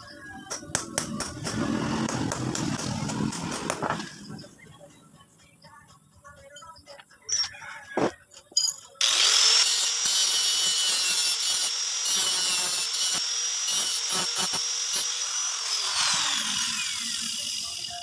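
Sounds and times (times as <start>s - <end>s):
angle grinder whine: 9.0s - 18.0s
grinding metal rasp: 9.0s - 18.0s.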